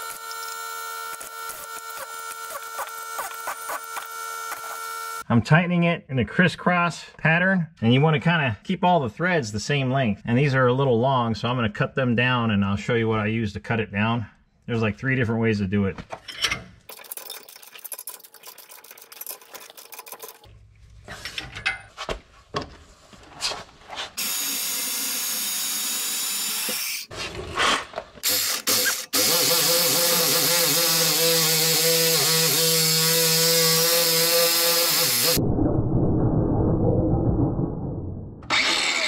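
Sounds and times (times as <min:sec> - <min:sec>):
angle grinder grinding: 0:00.0 - 0:05.2, 0:24.2 - 0:27.1, 0:28.2 - 0:35.4, 0:38.4 - 0:39.0
reciprocating saw cutting metal: 0:00.0 - 0:05.2, 0:28.2 - 0:35.4, 0:38.4 - 0:39.0.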